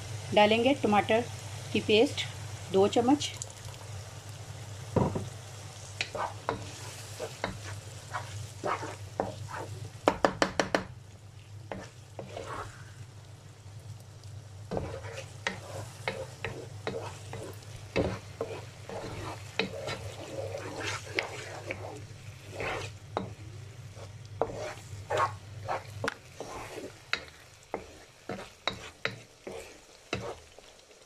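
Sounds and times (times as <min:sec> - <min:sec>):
mince sizzling: 0:00.0 - 0:31.0
spatula scraping frying pan: 0:06.0 - 0:10.2, 0:11.7 - 0:13.0, 0:14.7 - 0:30.8
spatula knocking against pan: 0:10.0 - 0:10.9, 0:14.7 - 0:20.0.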